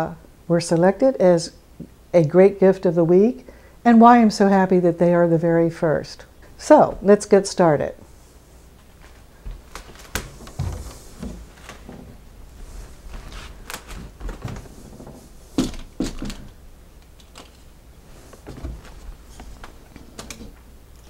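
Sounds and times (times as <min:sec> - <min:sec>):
soft handling sounds: 0:08.1 - 0:20.6.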